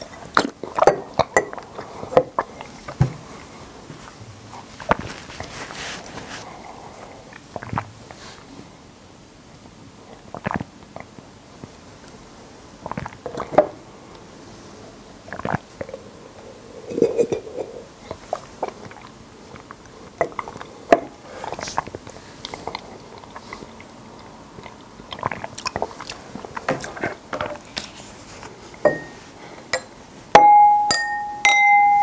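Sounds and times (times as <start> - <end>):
person gulping and swallowing: 0.0 - 3.5, 7.3 - 8.0, 10.2 - 11.2, 12.8 - 13.8, 15.2 - 27.2
wet mouth chewing clicks: 10.4 - 11.1, 12.8 - 13.5, 15.3 - 15.6, 21.5 - 27.0
struck glass ringing: 28.9 - 29.2, 29.8 - 32.0.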